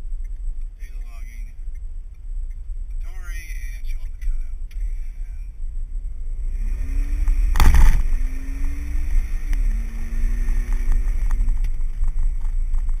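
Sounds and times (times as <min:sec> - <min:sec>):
road rumble: 0:00.0 - 0:13.0
car engine accelerating hard: 0:06.2 - 0:13.0.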